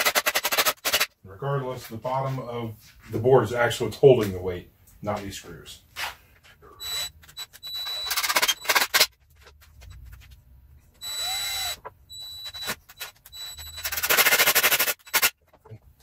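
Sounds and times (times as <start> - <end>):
cordless drill driving screws: 6.8 - 9.1, 11.0 - 15.3
rapid rattle: 12.9 - 15.3.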